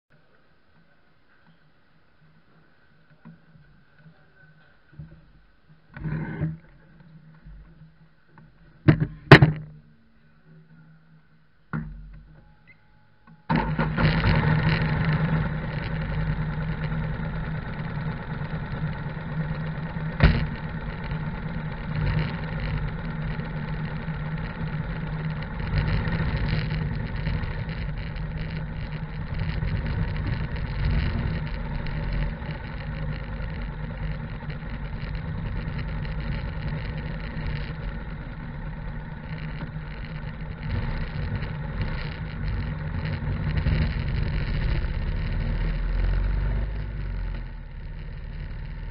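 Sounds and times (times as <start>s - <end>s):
sharp clunk: 8.8s - 9.8s
motorcycle engine running: 13.5s - 48.9s.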